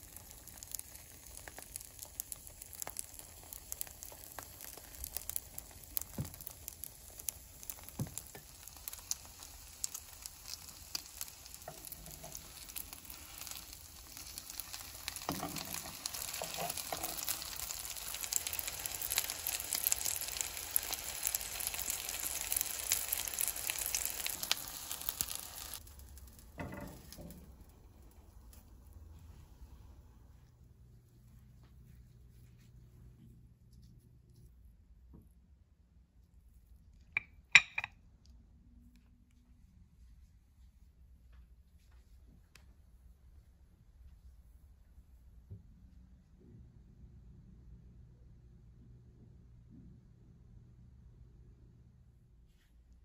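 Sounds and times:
food sizzling in oil: 0:00.0 - 0:27.4.

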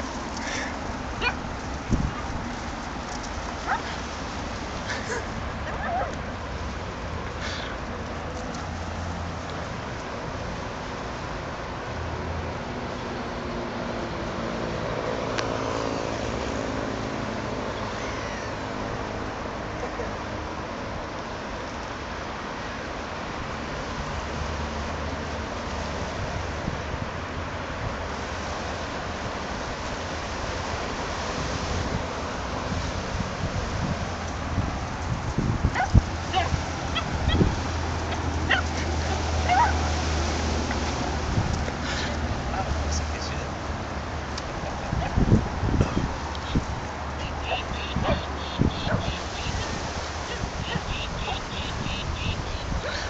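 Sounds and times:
wind rumble on microphone: 0:00.0 - 0:13.2, 0:23.1 - 0:53.0
rushing outdoor noise: 0:00.0 - 0:53.0
small dogs yipping: 0:01.2 - 0:01.4, 0:03.6 - 0:04.0, 0:04.9 - 0:06.2, 0:35.7 - 0:39.9, 0:47.2 - 0:51.8.

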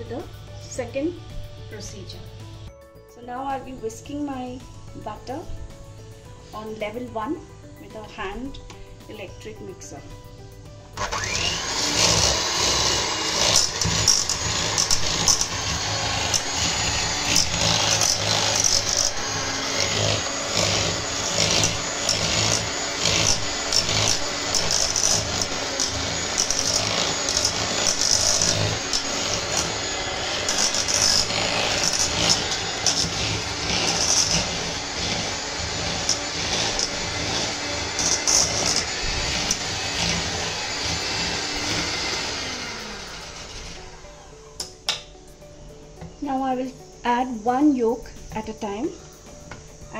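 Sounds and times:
electric hand mixer running: 0:11.0 - 0:44.6.

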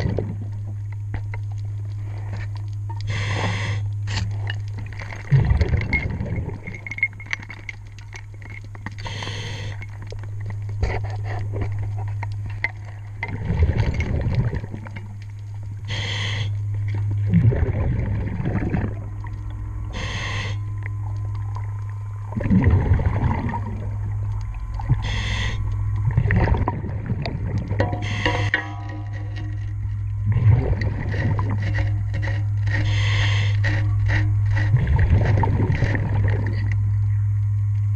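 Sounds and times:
exhaust bubbles burbling: 0:00.0 - 0:00.9, 0:03.0 - 0:07.6, 0:09.1 - 0:37.0
steady low hum: 0:00.0 - 0:37.9
hissing regulator inhale: 0:03.0 - 0:04.2, 0:09.0 - 0:09.9, 0:15.8 - 0:16.6, 0:19.9 - 0:20.7, 0:24.9 - 0:25.8, 0:28.0 - 0:28.6, 0:31.2 - 0:36.0.

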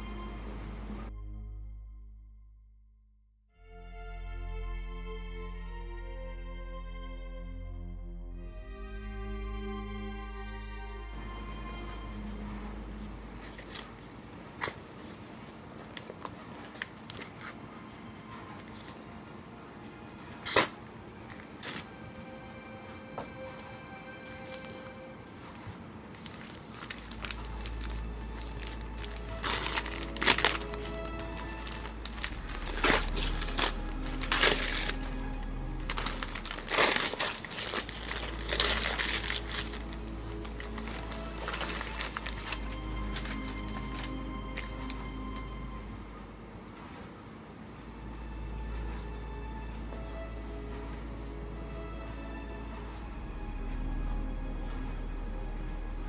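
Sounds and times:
background music: 0:00.0 - 0:02.7, 0:03.5 - 0:15.1, 0:16.5 - 0:56.0
plastic tearing: 0:20.4 - 0:20.8, 0:26.2 - 0:45.4
plastic envelope crinkling: 0:24.2 - 0:45.6.

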